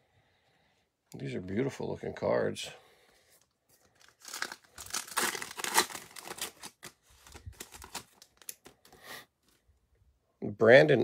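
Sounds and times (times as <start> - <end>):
plastic wrapper tearing and crinkling: 4.0 - 8.8.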